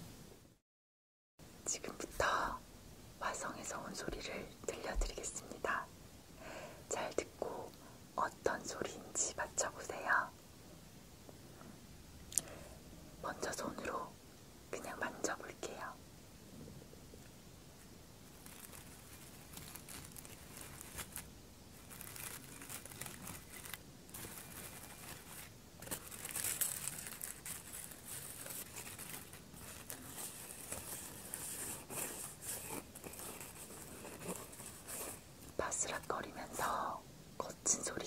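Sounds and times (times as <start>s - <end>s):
hands rustling crinkly object: 18.2s - 36.9s.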